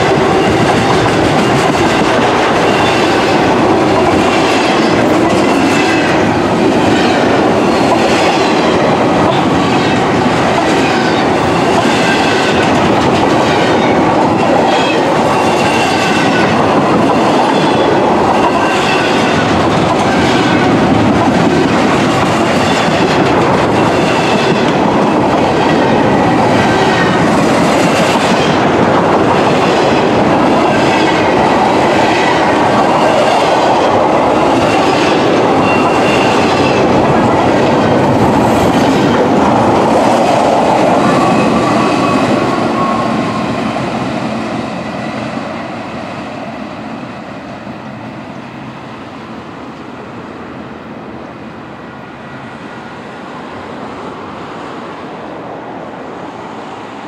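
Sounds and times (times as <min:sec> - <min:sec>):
train wheels rumbling on rail: 0:00.0 - 0:57.0
high wheel squeal: 0:34.6 - 0:36.8.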